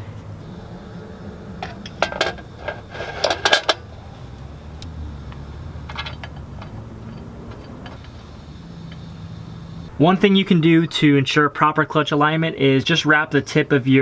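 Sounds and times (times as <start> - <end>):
metal parts clinking and scraping: 1.6 - 3.9, 5.7 - 8.2.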